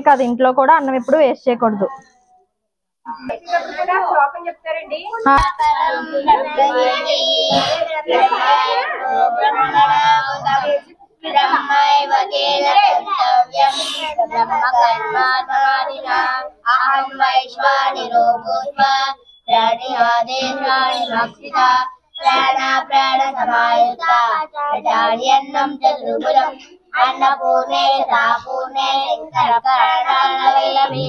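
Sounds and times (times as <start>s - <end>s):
children chanting a prayer: 3.2s - 4.3s, 5.0s - 31.0s.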